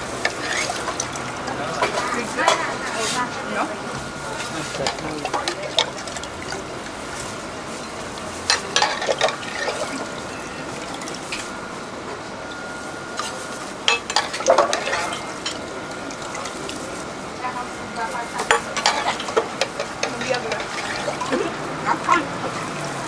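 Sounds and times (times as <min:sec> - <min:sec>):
water splashing: 0:00.0 - 0:11.7, 0:13.9 - 0:23.0
ladle clinking in steel pot: 0:08.5 - 0:10.6, 0:13.9 - 0:15.6, 0:18.4 - 0:21.4.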